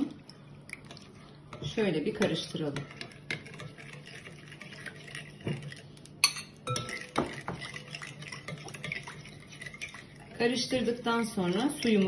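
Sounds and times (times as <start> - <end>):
spoon scraping glass bowl: 1.6 - 10.8.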